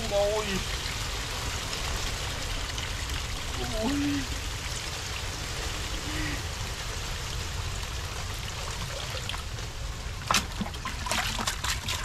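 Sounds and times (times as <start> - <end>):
water trickling and pouring: 0.0 - 12.0
water splash: 10.2 - 12.0.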